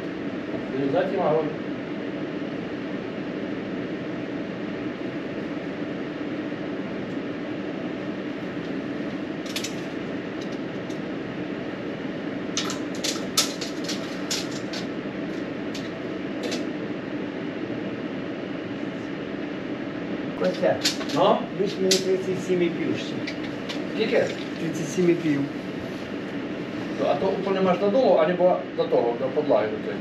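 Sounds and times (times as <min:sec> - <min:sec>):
machine hum: 0:00.0 - 0:30.0
sharp clicks and knocks: 0:12.6 - 0:14.9.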